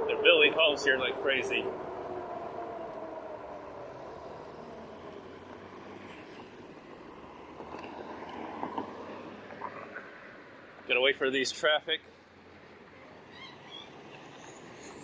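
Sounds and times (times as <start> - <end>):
high-pitched squeal: 3.5 - 8.1.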